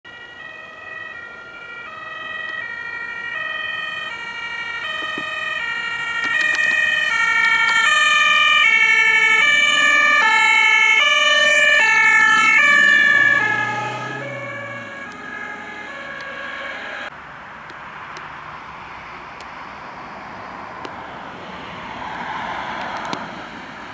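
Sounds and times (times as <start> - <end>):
two-tone siren: 0.1 - 17.1
car passing: 0.2 - 23.9.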